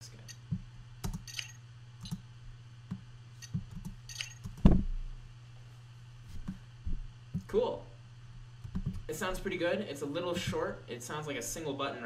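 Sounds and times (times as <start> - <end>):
sharp clicks and metallic clinks: 1.1 - 2.2, 3.4 - 4.6.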